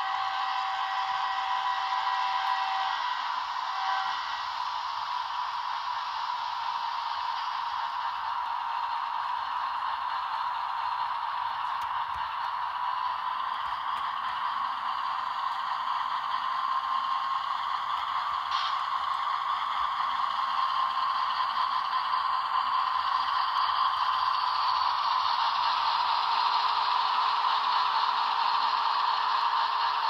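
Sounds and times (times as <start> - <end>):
model train motor whine: 0.0 - 30.0.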